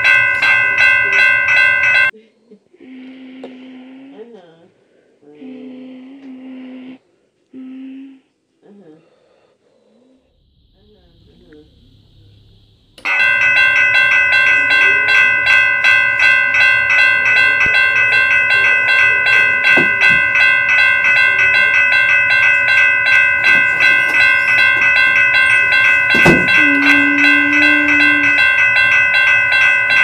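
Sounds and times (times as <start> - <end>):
electronic crossing bell dinging: 0.0 - 2.1, 13.0 - 30.0
knock: 26.1 - 26.6.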